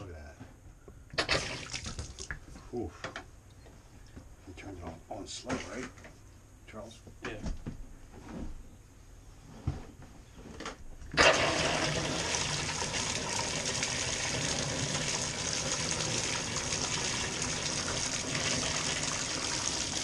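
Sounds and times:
water gushing into tub: 1.2s - 2.4s, 11.2s - 20.0s.

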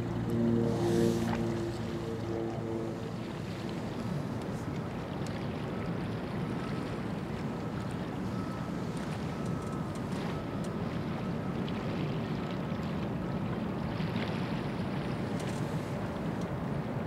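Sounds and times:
ship machinery rumble: 0.0s - 12.4s
faint steady whine: 0.0s - 17.0s.

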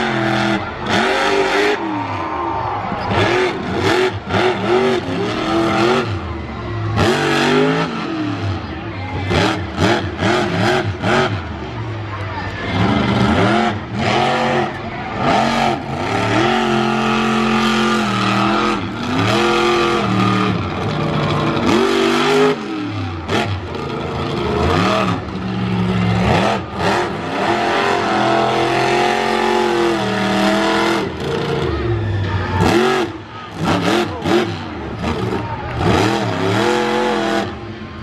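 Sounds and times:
monster truck engine revving: 0.0s - 38.0s.

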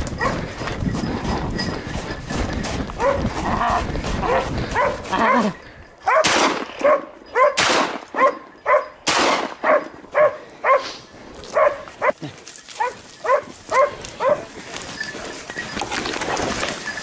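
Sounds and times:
dogs barking: 0.0s - 0.7s, 3.0s - 12.2s, 12.8s - 14.7s.

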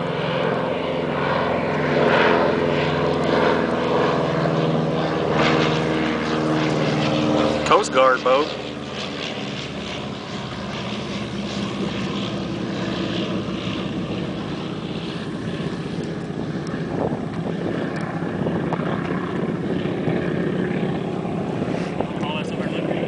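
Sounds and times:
propeller aircraft engines droning: 0.0s - 23.0s.

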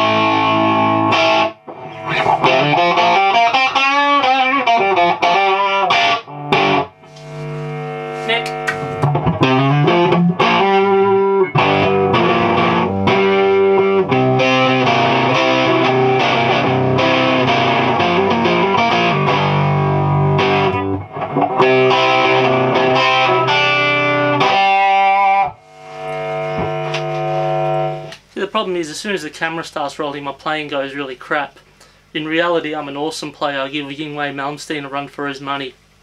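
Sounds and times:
electric guitar playing chords: 0.0s - 28.2s.

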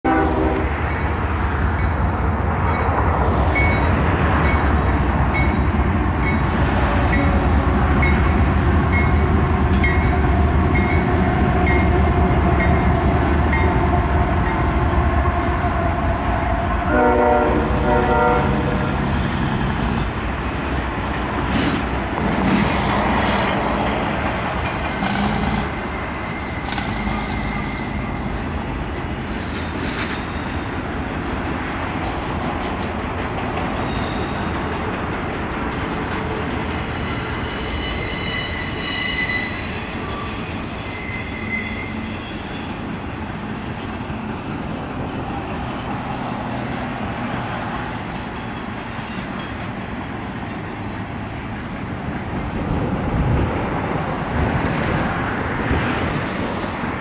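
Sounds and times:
train horn blast: 0.0s - 0.8s, 16.9s - 19.0s
diesel locomotive engine drone: 0.0s - 57.0s.

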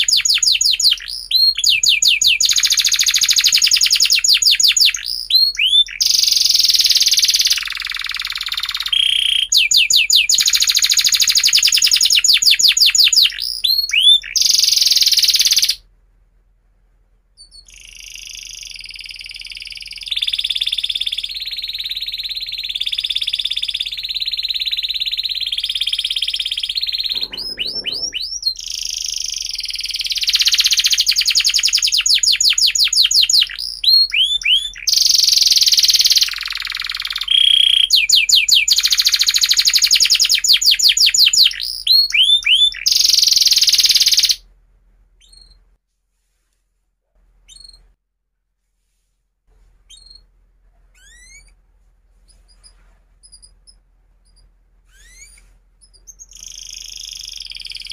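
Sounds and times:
canary singing trills: 0.0s - 15.8s, 17.4s - 44.4s, 45.2s - 45.6s, 49.9s - 50.3s, 52.3s - 57.9s.

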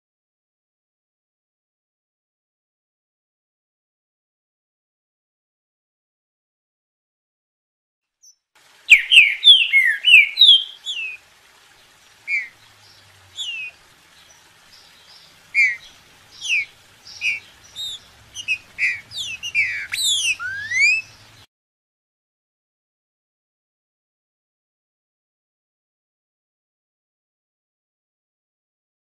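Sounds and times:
bird singing whistled notes: 8.2s - 11.2s, 12.2s - 21.3s.

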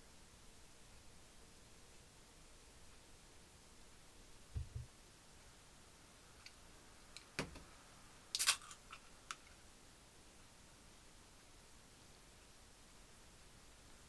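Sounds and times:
soft low bumps: 4.5s - 4.9s.

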